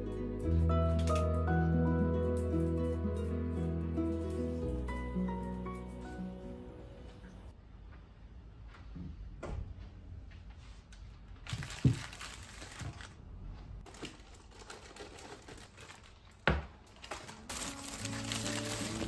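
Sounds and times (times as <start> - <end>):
background music: 0.0 - 7.5, 17.5 - 19.0
paper bag rustling: 11.4 - 13.2, 13.8 - 19.0.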